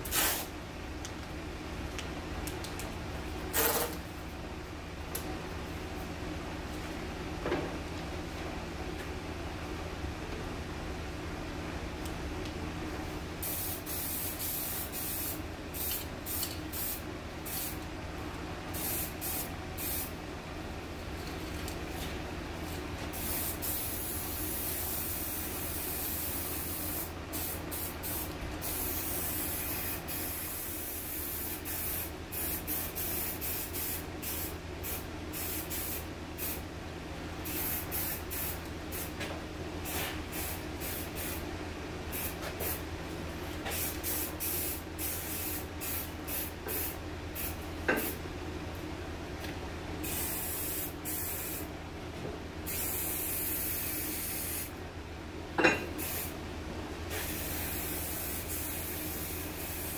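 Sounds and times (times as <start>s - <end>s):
spray paint can hissing: 0.0s - 0.5s, 3.5s - 4.0s, 13.4s - 17.8s, 18.8s - 20.1s, 23.1s - 36.6s, 37.4s - 39.1s, 39.9s - 41.4s, 43.7s - 48.1s, 50.0s - 51.6s, 52.7s - 54.7s, 56.0s - 56.3s, 57.1s - 59.9s
steady low hum: 0.0s - 59.9s.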